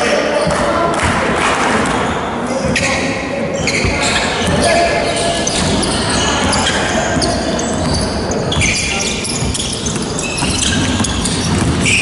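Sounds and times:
sneakers squeaking: 1.8s - 12.0s
basketball bouncing on wooden floor: 5.4s - 12.0s.

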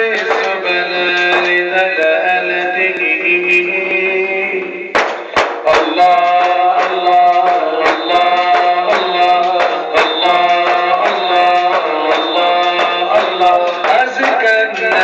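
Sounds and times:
man singing into a microphone: 0.0s - 15.0s
hand drum beating: 5.0s - 15.0s.

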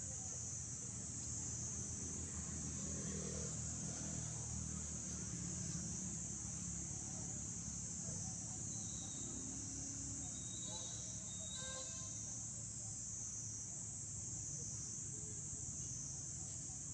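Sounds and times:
insect chorus drone: 0.0s - 16.9s.

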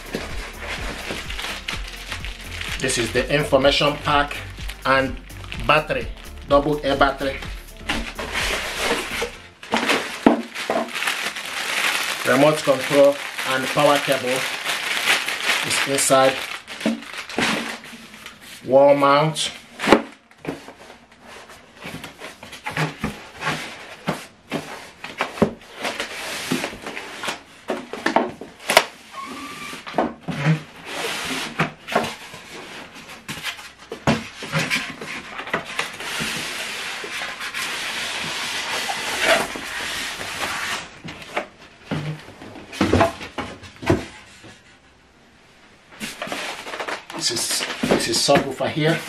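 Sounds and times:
cardboard and foam knocking: 0.0s - 3.3s, 4.1s - 10.9s
foam rubbing and scraping: 0.0s - 16.7s, 20.8s - 27.4s, 29.1s - 41.0s.

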